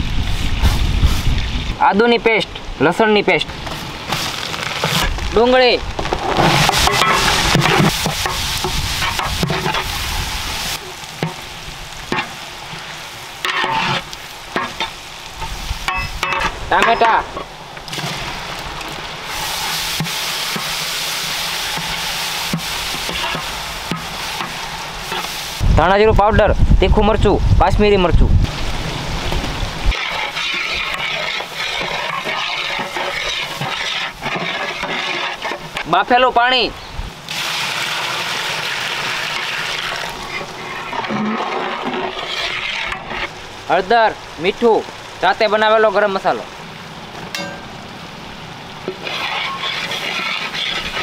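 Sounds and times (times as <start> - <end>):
onions sizzling in a pan: 3.5 - 26.0, 28.4 - 45.2, 45.9 - 51.0
water pouring into pan: 29.9 - 35.8, 37.3 - 43.5.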